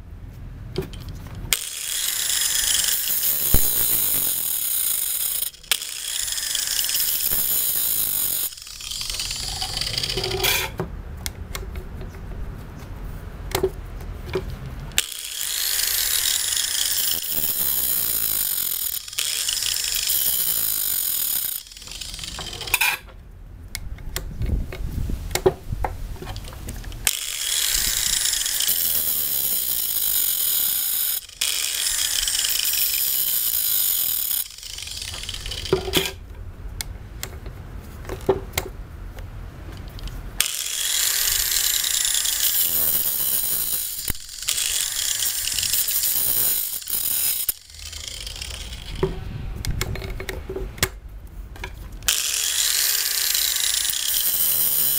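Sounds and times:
sharp clicks and knocks: 0:00.7 - 0:12.9, 0:13.5 - 0:15.2, 0:21.4 - 0:28.7, 0:34.1 - 0:54.2
angle grinder grinding chain: 0:00.8 - 0:10.8, 0:14.4 - 0:23.1, 0:26.2 - 0:36.2, 0:39.8 - 0:50.5, 0:51.8 - 0:54.9.

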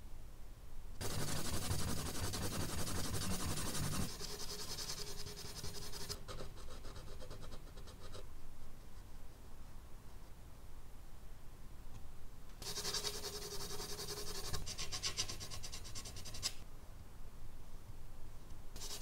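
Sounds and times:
charcoal pencil scratching on paper: 0:01.0 - 0:09.4, 0:12.6 - 0:16.6, 0:18.8 - 0:19.0.

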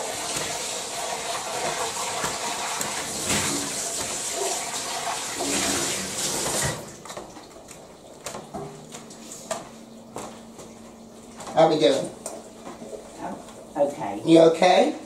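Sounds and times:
water running from tap: 0:00.0 - 0:09.4.

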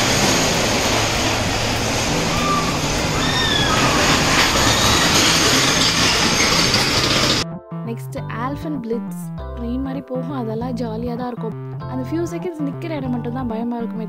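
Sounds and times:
roller coaster rumbling on track: 0:00.0 - 0:07.4
short high squeals: 0:02.1 - 0:07.4.

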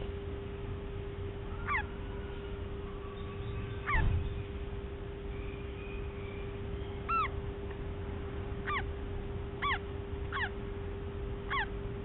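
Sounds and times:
steady low hum: 0:00.0 - 0:12.0
parrot chick chirping: 0:01.5 - 0:02.3, 0:03.0 - 0:04.5, 0:05.3 - 0:07.4, 0:08.6 - 0:08.9, 0:09.6 - 0:10.6, 0:11.4 - 0:11.8.

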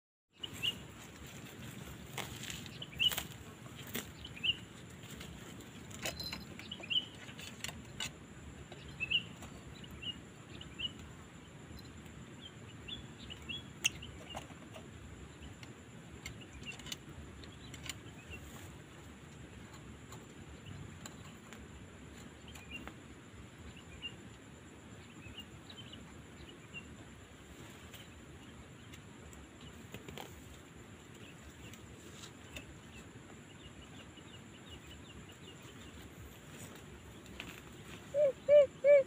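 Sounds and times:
quail chirping calls: 0:37.7 - 0:39.0.

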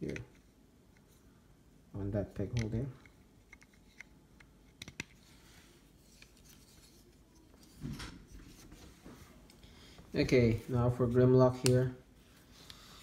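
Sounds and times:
light plastic clicks: 0:02.5 - 0:05.2
soft rubbing: 0:05.1 - 0:13.0.

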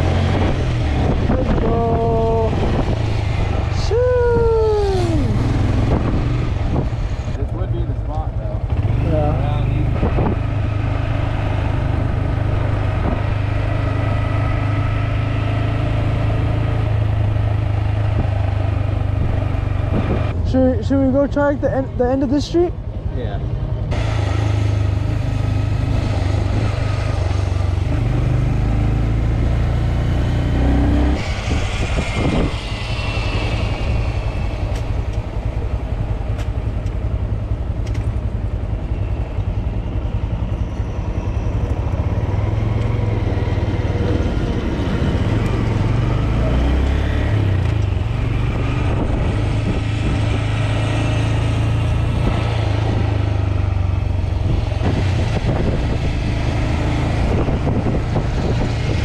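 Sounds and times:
wind on the microphone: 0:00.0 - 0:07.4, 0:09.9 - 0:10.7, 0:19.0 - 0:20.6, 0:30.4 - 0:36.3, 0:47.3 - 0:59.0.

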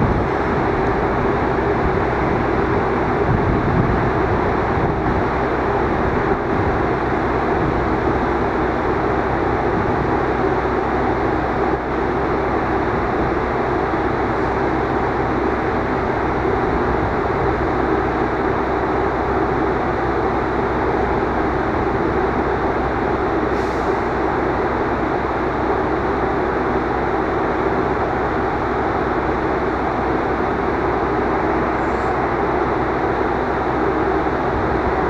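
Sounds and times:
diesel locomotive engine rumbling: 0:00.0 - 0:35.0.

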